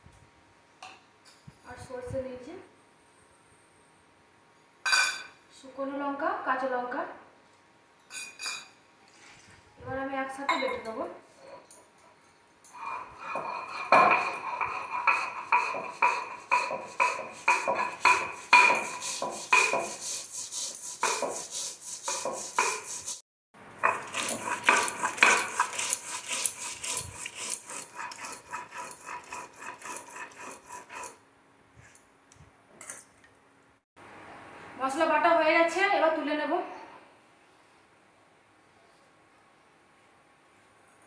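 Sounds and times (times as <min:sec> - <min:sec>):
stone roller grinding on stone slab: 0:12.7 - 0:23.2, 0:23.8 - 0:31.2.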